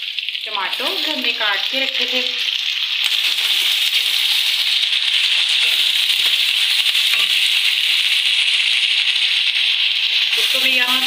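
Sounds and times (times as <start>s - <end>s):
meat sizzling in oil: 0.0s - 11.0s.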